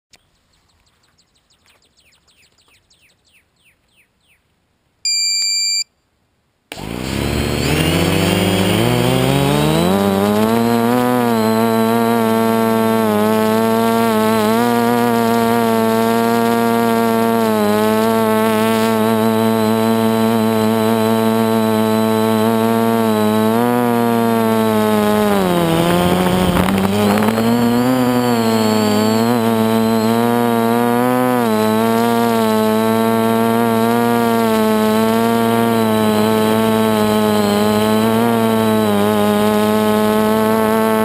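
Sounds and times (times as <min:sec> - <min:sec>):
electronic beep: 0:05.1 - 0:06.0, 0:26.0 - 0:30.6
aircraft electric motors whining: 0:06.7 - 0:41.0.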